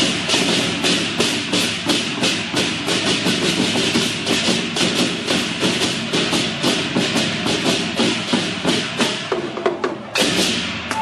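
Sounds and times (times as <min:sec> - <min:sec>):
cymbals clashing: 0:00.0 - 0:11.0.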